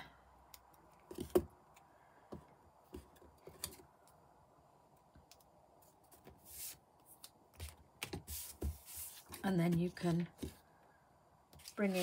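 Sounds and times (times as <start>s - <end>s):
soft brushing rustle: 5.8s - 10.6s, 11.6s - 12.0s.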